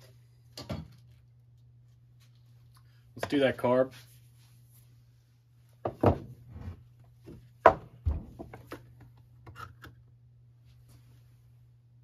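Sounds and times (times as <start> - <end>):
hollow thunks on wooden bench: 5.8 - 6.4, 7.3 - 8.7.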